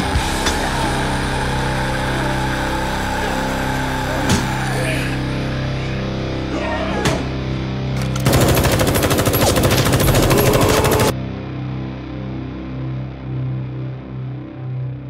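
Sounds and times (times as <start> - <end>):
rock music: 0.0 - 13.5
automatic gunfire: 8.0 - 11.1.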